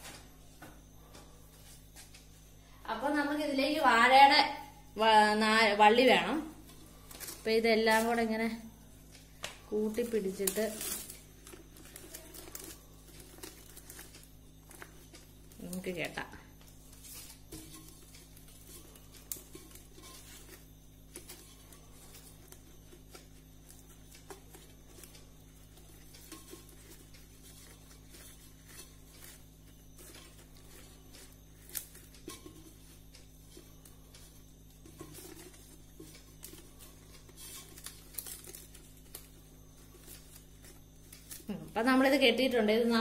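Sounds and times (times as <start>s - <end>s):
steady low hum: 0.0s - 43.0s
leaves rustling and crinkling: 10.0s - 15.9s, 34.9s - 41.8s.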